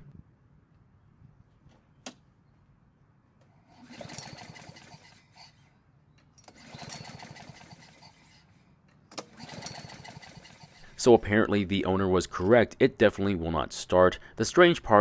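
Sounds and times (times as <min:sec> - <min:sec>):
lawn mower engine cranking: 0:03.7 - 0:05.6, 0:06.4 - 0:08.4, 0:09.1 - 0:11.3
recoil cord pull: 0:03.8 - 0:05.6, 0:06.4 - 0:08.4, 0:09.1 - 0:10.8.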